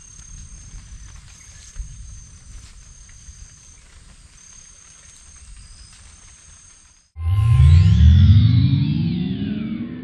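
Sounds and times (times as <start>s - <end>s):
low microphone rumble: 7.2s - 10.0s.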